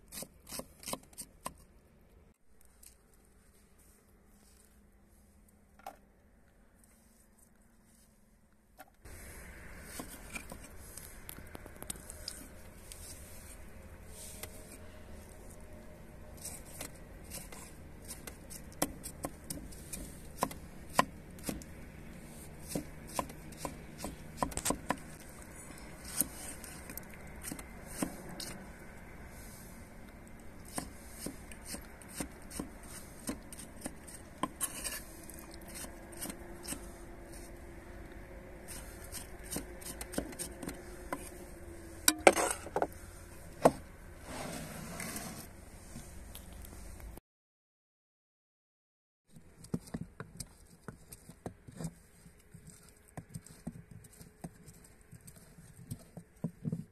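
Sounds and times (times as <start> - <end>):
knife chopping on wooden board: 18.1 - 21.6, 22.6 - 25.1.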